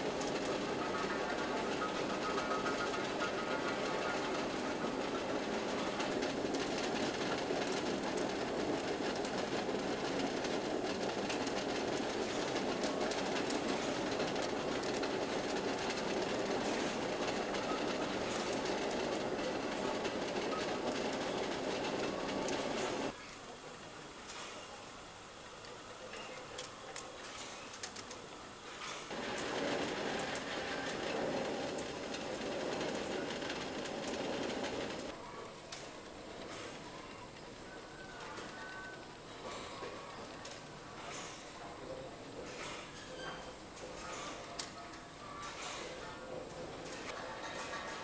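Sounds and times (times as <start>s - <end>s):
eggs rattling on roller conveyor: 0.0s - 23.2s, 29.0s - 35.1s.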